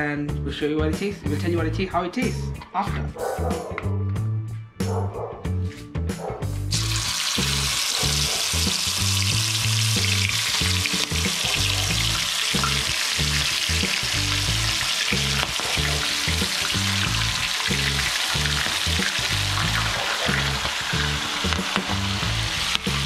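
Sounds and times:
background music with bass line: 0.0s - 23.0s
deep-frying sizzle in oil: 6.7s - 23.0s.

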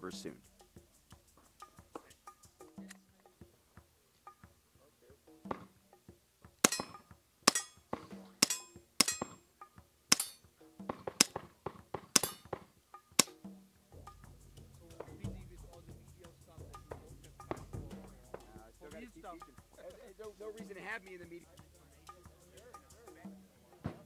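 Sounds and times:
suppressed pistol shots: 6.6s - 9.4s, 10.1s - 10.4s, 11.0s - 12.6s.

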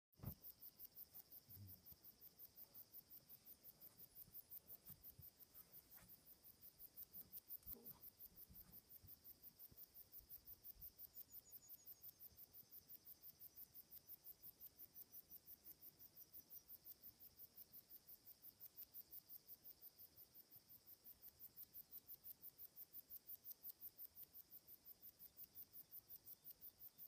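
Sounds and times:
insect chirping: 0.2s - 27.0s.

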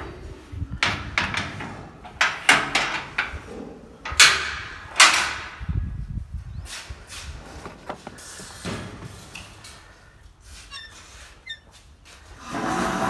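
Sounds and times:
metal gate clanging: 0.8s - 5.7s.

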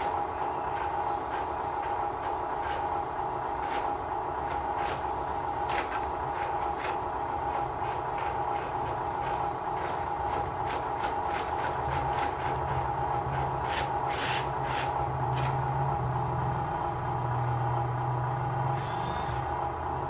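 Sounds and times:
electric motor whine: 18.6s - 19.6s.

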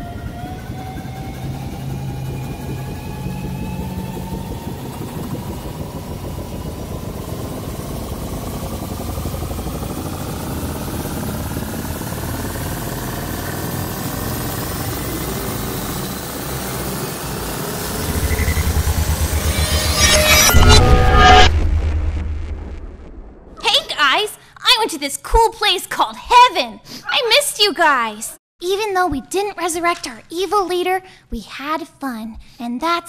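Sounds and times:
low rumble: 0.0s - 23.6s
rising tones: 0.0s - 23.6s.

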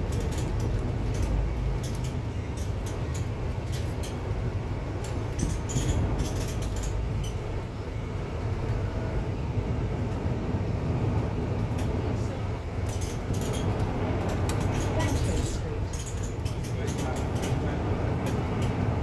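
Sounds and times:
light clicks and rattles: 0.0s - 4.3s, 12.8s - 18.8s
bus engine and road rumble: 0.0s - 19.0s.

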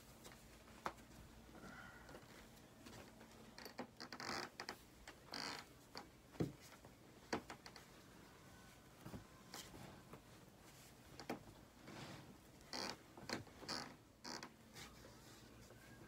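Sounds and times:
t-shirt fabric rustling: 4.3s - 16.0s.

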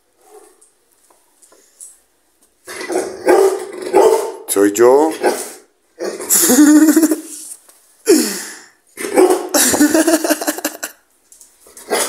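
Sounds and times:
dog barking roughly: 2.7s - 4.5s, 5.1s - 6.3s, 9.0s - 9.6s.

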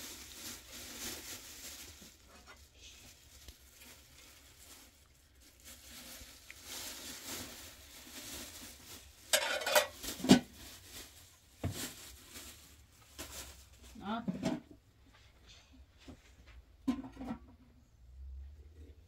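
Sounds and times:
scraping rustling clatter: 0.0s - 14.7s.

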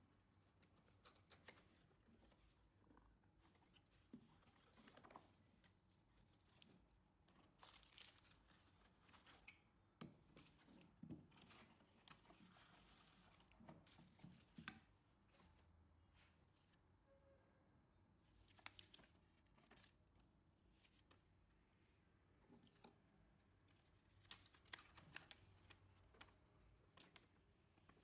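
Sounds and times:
rustling of packaging: 7.4s - 9.7s.

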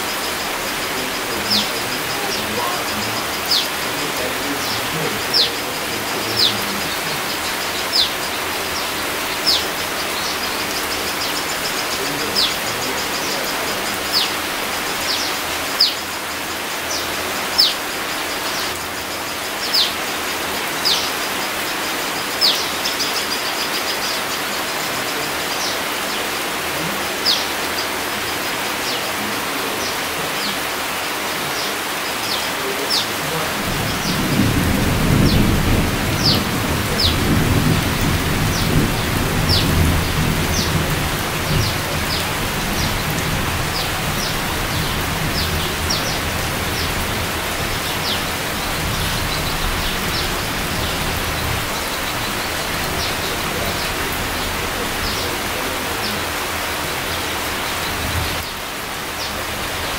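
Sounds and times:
bird calling: 0.0s - 59.4s
rain falling on foliage: 0.0s - 59.9s.

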